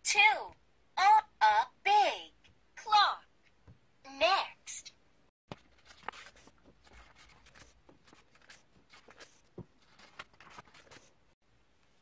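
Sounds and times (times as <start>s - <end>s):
paper rustling: 5.5s - 11.3s.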